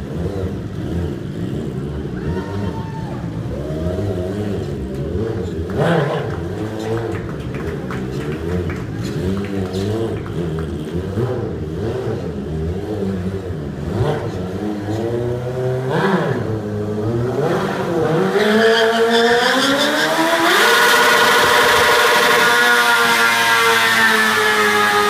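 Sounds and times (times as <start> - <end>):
motorcycle engine revving: 0.0 - 25.0.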